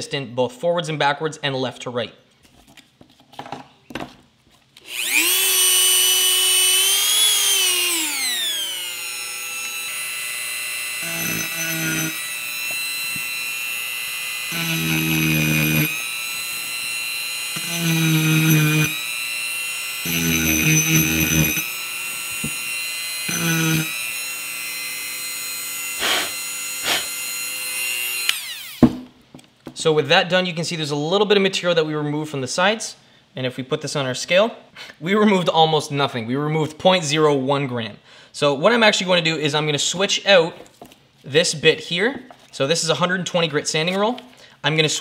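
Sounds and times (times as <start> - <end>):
rotary tool whining: 4.8 - 28.8.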